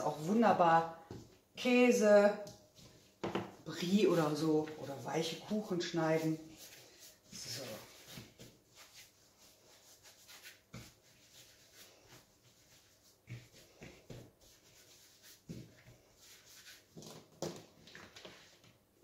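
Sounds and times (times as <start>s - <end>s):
hands rubbing bread dough: 3.8s - 17.3s.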